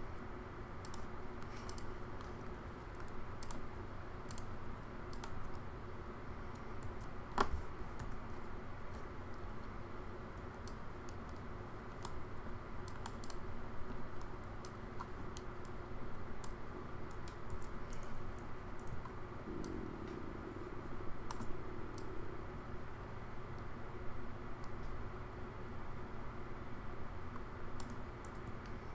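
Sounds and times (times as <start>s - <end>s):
low background hum: 0.0s - 28.9s
mouse and keyboard clicks: 0.8s - 3.6s.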